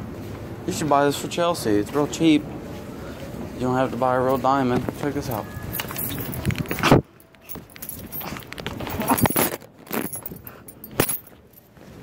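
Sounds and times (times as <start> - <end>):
clothing rustling on microphone: 4.7 - 12.0
metal chain jingling: 5.2 - 11.7.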